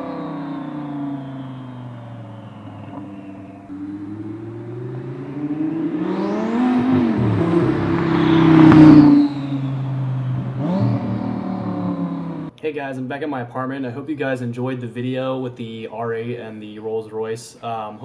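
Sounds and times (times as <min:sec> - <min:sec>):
sports car accelerating past: 0:00.0 - 0:12.5.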